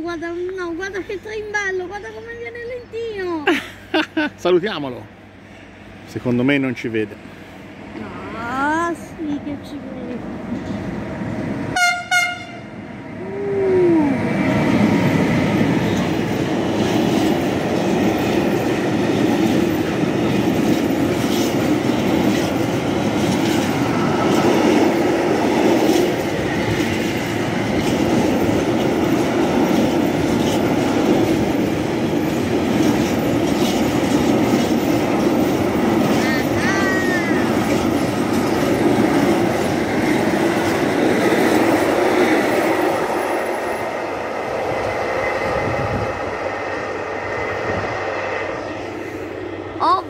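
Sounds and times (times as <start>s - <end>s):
train wheels rumbling on rail: 0.0s - 50.0s
locomotive horn toots: 11.8s - 12.8s.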